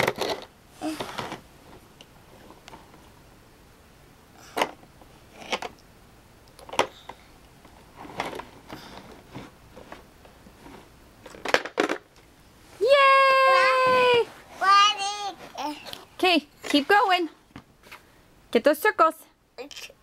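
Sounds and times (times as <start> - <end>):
plastic blocks clacking: 0.0 - 1.4.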